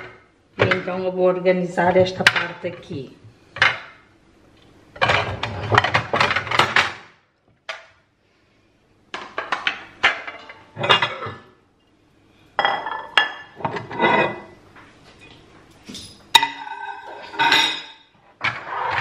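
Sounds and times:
plates and dishes clinking: 9.2s - 11.5s, 12.6s - 14.6s, 15.9s - 19.0s.

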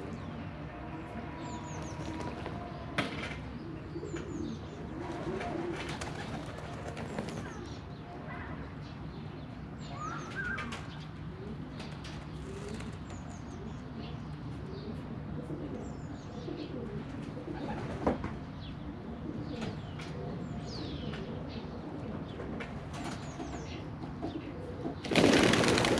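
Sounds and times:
pigeons cooing: 0.0s - 7.8s, 10.0s - 25.9s
songbirds chirping: 0.0s - 25.9s
wings fluttering: 25.0s - 25.9s.

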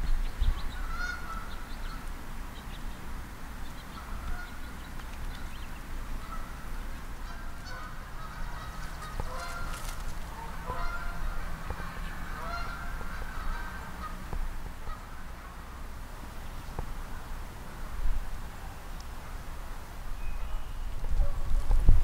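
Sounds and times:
steady low rumble: 0.0s - 22.0s
geese honking: 0.7s - 1.7s, 3.9s - 4.7s, 5.4s - 15.8s.

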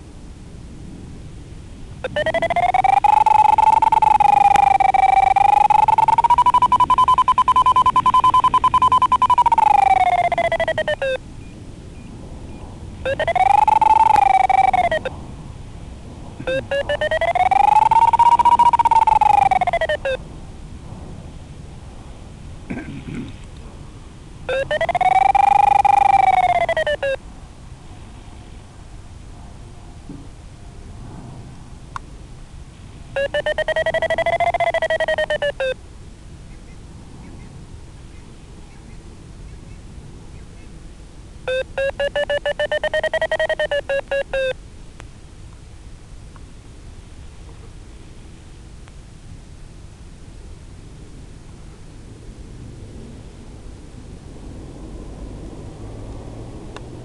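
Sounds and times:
rapid rising beeping tone: 2.0s - 11.2s, 13.0s - 15.1s, 16.4s - 20.2s, 24.5s - 27.2s, 33.2s - 35.8s, 41.5s - 44.6s.

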